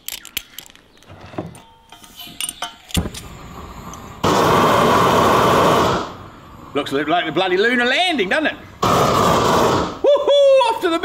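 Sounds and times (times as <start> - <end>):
gas torch flame rushing: 3.0 - 6.8, 8.8 - 10.0.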